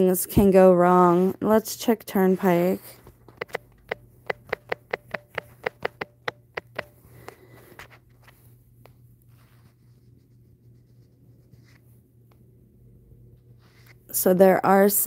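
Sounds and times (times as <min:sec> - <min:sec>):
faint steady hum: 0:00.0 - 0:15.0
taps on smartphone touchscreen: 0:03.3 - 0:07.9.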